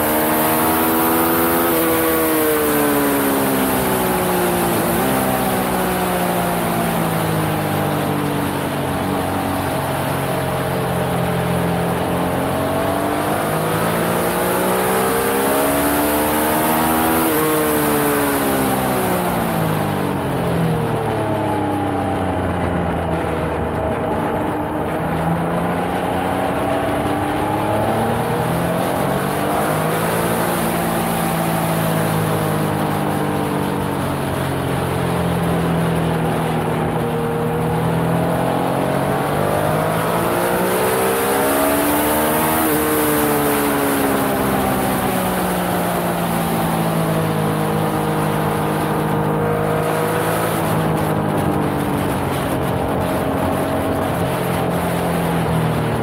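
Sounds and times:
motorcycle engine revving: 0:00.0 - 0:56.0
wind on microphone: 0:17.0 - 0:56.0.

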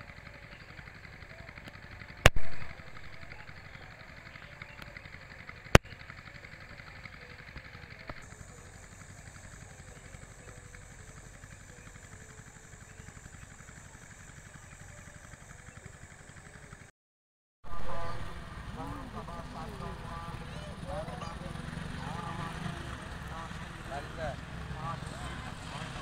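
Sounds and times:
faint low engine hum: 0:00.0 - 0:16.9, 0:17.7 - 0:26.0
sharp click: 0:02.3 - 0:02.8.

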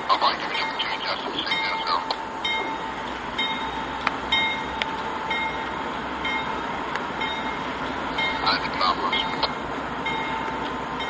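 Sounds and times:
diesel locomotive rumbling past: 0:00.0 - 0:11.0
steady high tone: 0:00.0 - 0:11.0
bell ringing: 0:01.4 - 0:06.6, 0:07.2 - 0:10.5.

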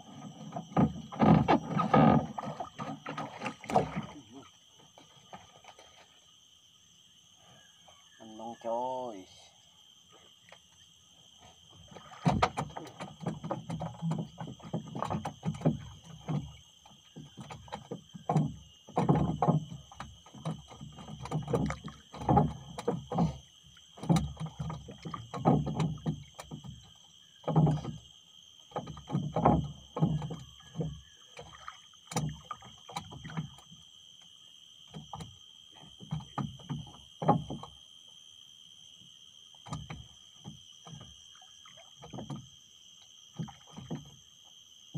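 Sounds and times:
water slapping against boat hull: 0:00.0 - 0:06.2, 0:11.7 - 0:37.8, 0:39.5 - 0:42.6, 0:43.2 - 0:44.5.

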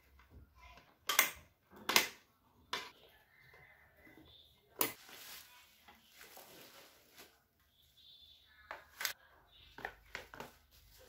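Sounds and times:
bubble wrap rustle: 0:05.0 - 0:07.8, 0:10.4 - 0:11.0.

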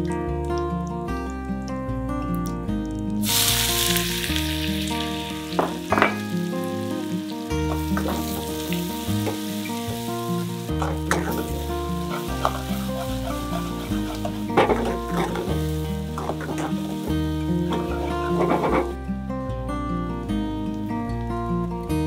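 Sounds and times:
onion frying in hot oil: 0:03.2 - 0:19.0.

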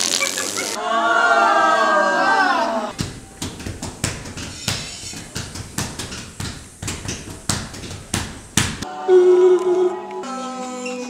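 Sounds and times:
hands slapping glass windows: 0:02.9 - 0:08.8
voices singing a held chord: 0:08.8 - 0:11.0.

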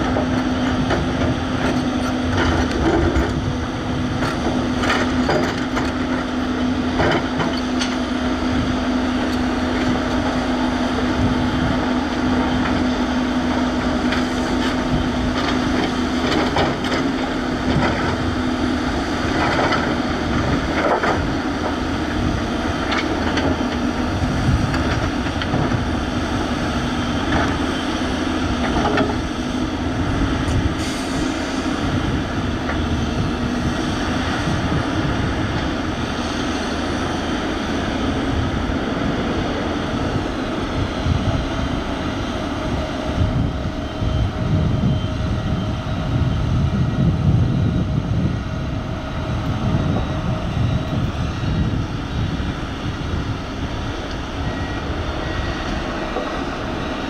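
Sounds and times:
heavy machinery engine drone: 0:00.0 - 0:57.0.

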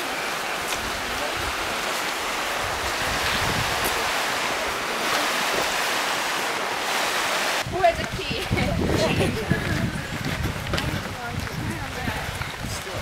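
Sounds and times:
mountain stream rushing over boulders: 0:00.0 - 0:13.0
wind buffeting microphone: 0:00.4 - 0:13.0.

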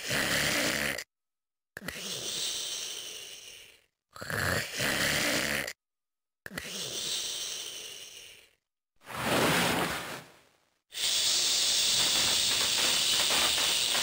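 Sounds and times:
voice-acted snoring: 0:00.0 - 0:01.1, 0:01.8 - 0:05.8, 0:06.5 - 0:08.6.

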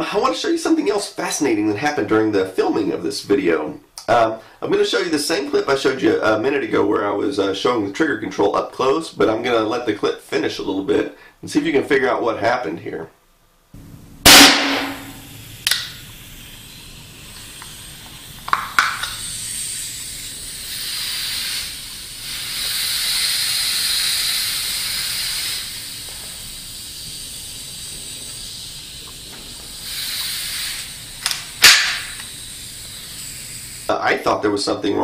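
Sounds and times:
gas hissing: 0:13.8 - 0:35.0
pistol shots: 0:14.3 - 0:15.2.

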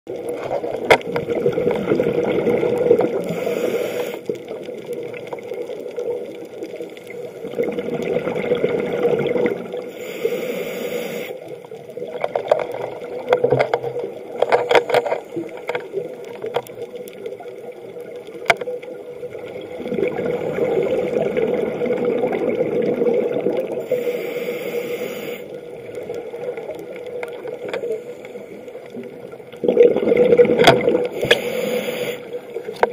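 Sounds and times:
bubbles gurgling: 0:00.1 - 0:03.5, 0:04.2 - 0:09.9, 0:11.5 - 0:14.5, 0:15.3 - 0:24.0, 0:25.5 - 0:27.7, 0:28.8 - 0:32.9
diver breathing through regulator: 0:03.2 - 0:04.3, 0:09.9 - 0:11.4, 0:23.8 - 0:25.6, 0:31.1 - 0:32.5.

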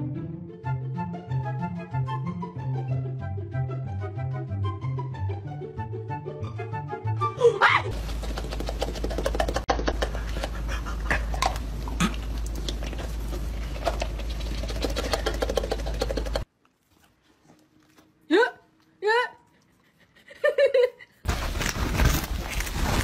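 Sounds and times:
steady low hum: 0:07.9 - 0:16.5
dog chewing and smacking: 0:07.9 - 0:18.2.

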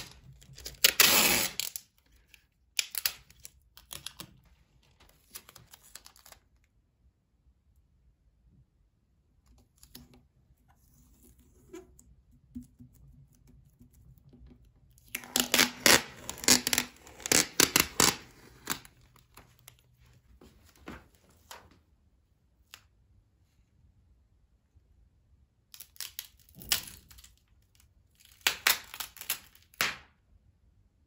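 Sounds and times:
taped paper crackling and crinkling: 0:00.0 - 0:06.7, 0:15.0 - 0:21.8, 0:25.8 - 0:29.9.

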